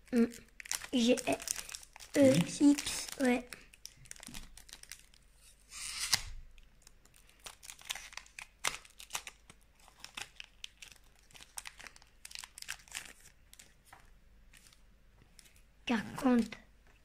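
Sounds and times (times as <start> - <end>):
foil crinkling: 0.0 - 5.2, 5.8 - 14.0
foil wrapper ripping: 0.6 - 13.8.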